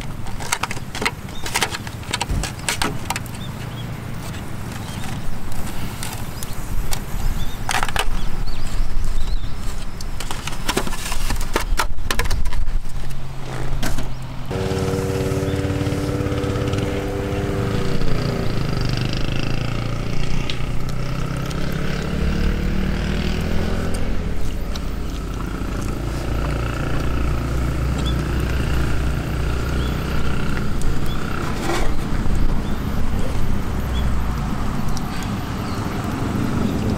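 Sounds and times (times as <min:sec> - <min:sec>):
motor engine running: 0:14.5 - 0:34.6.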